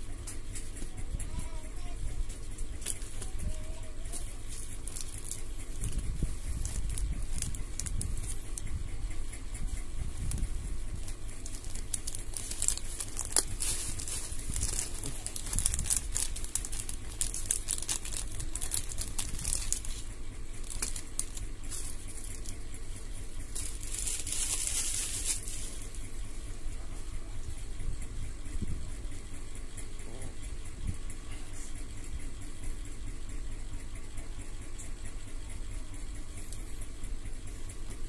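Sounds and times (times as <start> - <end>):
plastic bag crinkling: 2.8 - 8.7, 9.8 - 22.8, 23.4 - 26.0.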